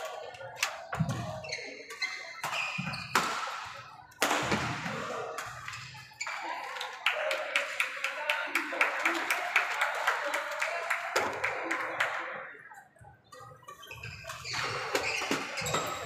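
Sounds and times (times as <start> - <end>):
rackets hitting shuttlecock: 2.4 - 5.9
shoes squeaking on wooden floor: 13.8 - 16.0.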